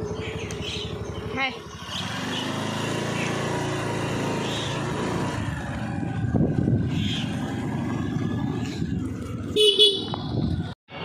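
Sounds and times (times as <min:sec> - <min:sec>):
motorcycle engine running: 0:00.0 - 0:11.0
wind buffeting microphone: 0:05.3 - 0:10.8.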